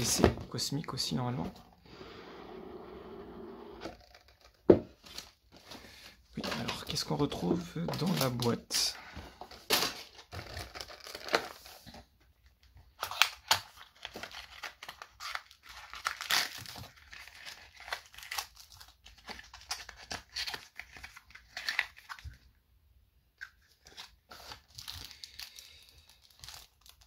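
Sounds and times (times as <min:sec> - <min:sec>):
plastic crinkling and tearing: 0:09.4 - 0:11.7, 0:12.9 - 0:22.4, 0:23.8 - 0:27.0.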